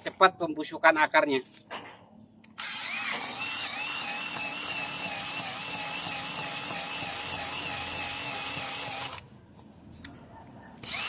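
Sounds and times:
cordless drill whining: 2.6 - 9.2.

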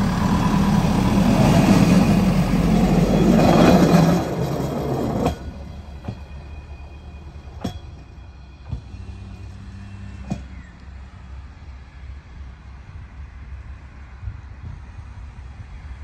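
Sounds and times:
wheels clacking over rail joints: 0.0 - 6.5
rail vehicle engine rumble: 0.0 - 16.0.

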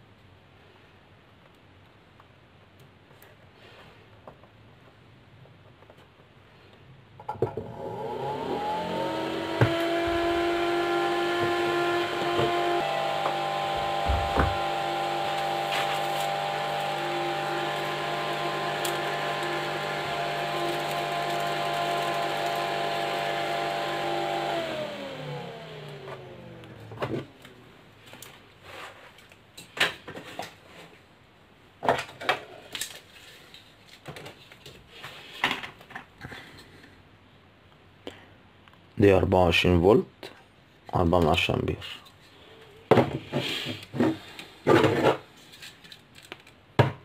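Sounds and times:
cooling fan whirring: 7.6 - 27.7.

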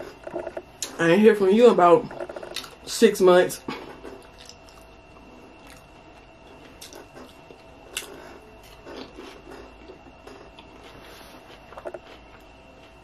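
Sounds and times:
chewing with clicks and smacks: 2.1 - 2.8, 4.0 - 13.0.

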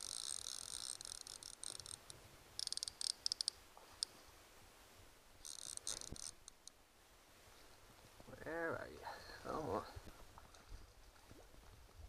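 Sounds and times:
fishing reel ratchet buzzing: 0.0 - 2.0, 2.6 - 3.6, 5.4 - 6.4.

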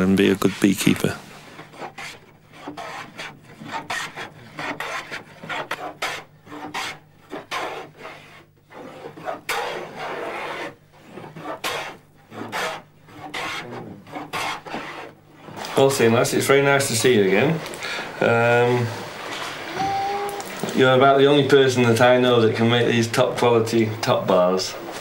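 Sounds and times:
hand tool scraping wood board: 0.0 - 17.6, 18.6 - 21.0.

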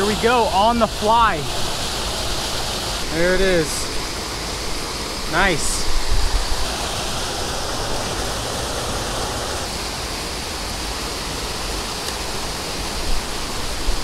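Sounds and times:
water rushing over a spillway: 0.0 - 14.0.

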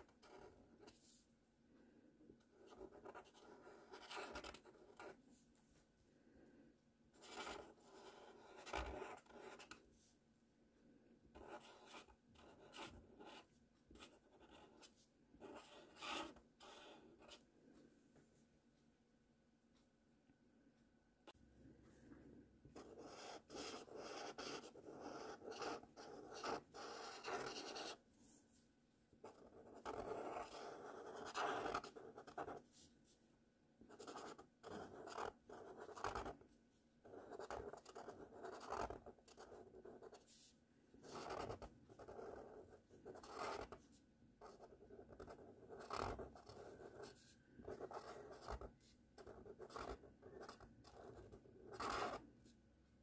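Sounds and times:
marker scraping across paper: 22.8 - 28.4, 37.1 - 52.2.

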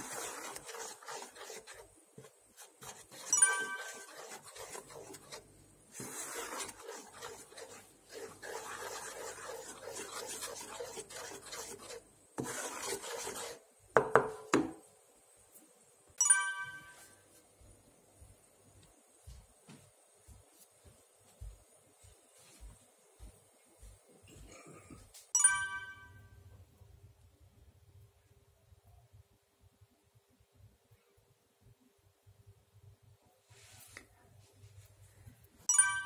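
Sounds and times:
wooden spatula scraping saucepan: 0.0 - 13.6.

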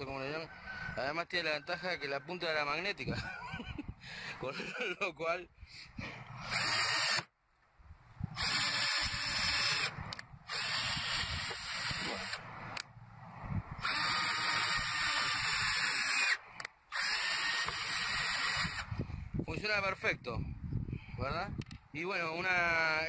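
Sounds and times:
cordless drill driving screw: 6.4 - 7.3, 8.4 - 12.4, 13.8 - 18.9.

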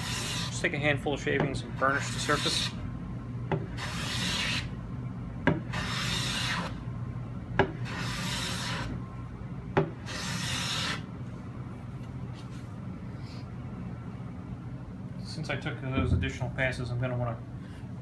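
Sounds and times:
hand plane shaving wood: 5.7 - 6.7, 7.9 - 8.9.

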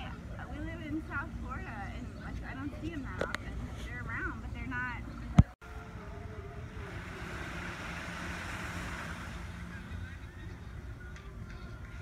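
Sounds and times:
small waves washing onto sand: 5.7 - 10.5.

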